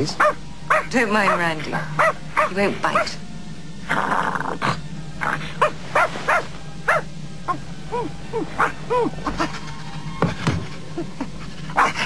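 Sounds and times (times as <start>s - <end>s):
small dog yapping: 5.6s - 9.4s.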